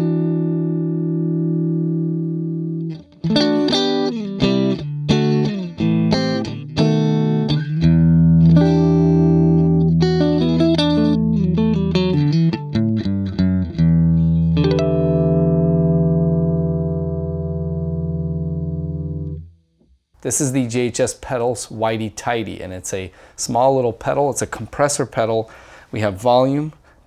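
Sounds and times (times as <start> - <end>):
electric guitar notes: 0.0 - 19.6.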